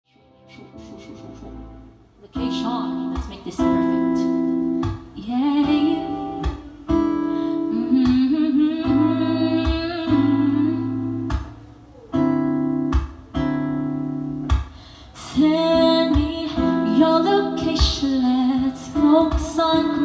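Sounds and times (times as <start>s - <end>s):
acoustic guitar strumming: 0.4s - 20.0s
person humming: 0.5s - 1.7s.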